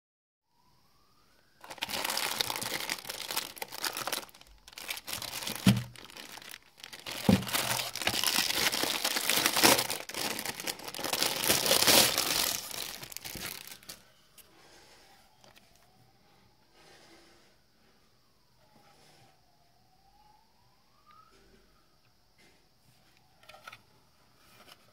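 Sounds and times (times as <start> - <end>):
plastic bag crinkling: 1.6 - 14.0.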